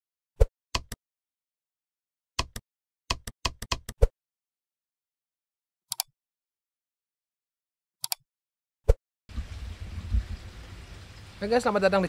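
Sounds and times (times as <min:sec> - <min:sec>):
keyboard tap clicks: 0:02.4 - 0:04.0.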